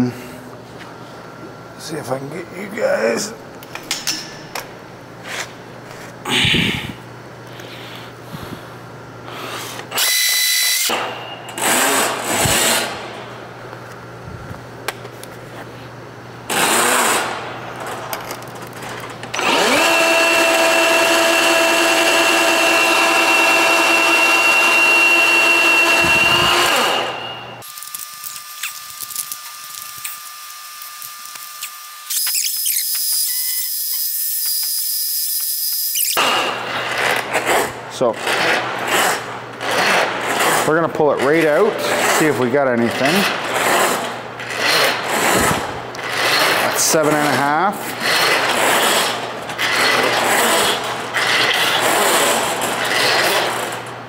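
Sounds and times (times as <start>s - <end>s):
drain cleaning machine spinning cable: 19.4s - 31.9s.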